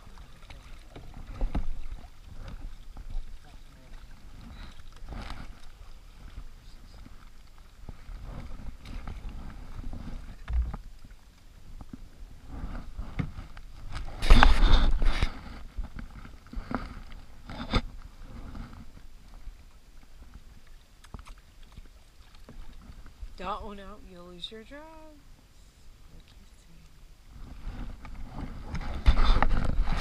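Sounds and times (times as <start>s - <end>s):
splashing: 0.0s - 11.2s, 12.7s - 24.9s
paddles knocking on hulls: 0.0s - 23.7s
water lapping against kayaks: 0.0s - 30.0s.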